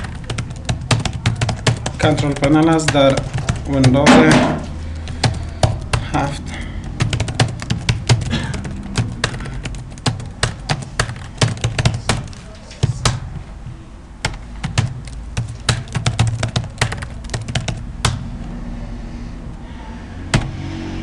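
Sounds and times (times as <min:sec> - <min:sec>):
computer keyboard typing: 0:00.0 - 0:04.1, 0:04.7 - 0:13.3, 0:14.2 - 0:18.2.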